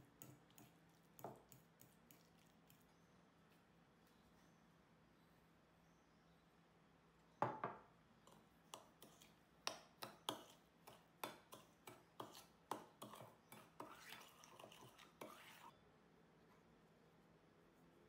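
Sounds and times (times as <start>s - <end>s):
metal spoon scraping glass bowl: 10.0s - 15.7s.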